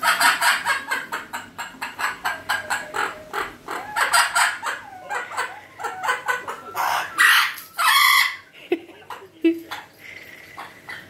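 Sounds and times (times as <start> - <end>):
parrot clucking calls: 0.0 - 11.0
parrot squawking harshly: 1.8 - 8.5.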